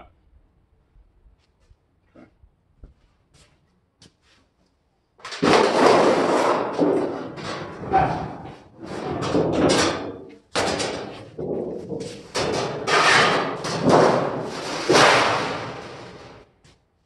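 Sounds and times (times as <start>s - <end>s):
thin steel sheet rattling: 5.3s - 16.4s.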